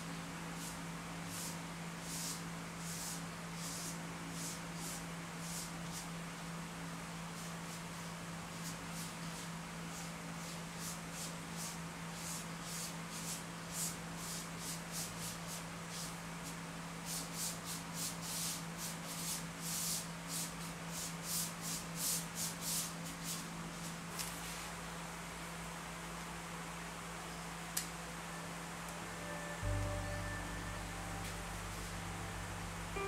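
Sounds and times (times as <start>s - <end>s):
paintbrush strokes on paper: 0.6s - 6.1s, 7.3s - 24.8s, 29.2s - 33.0s
steady low hum: 23.5s - 33.0s.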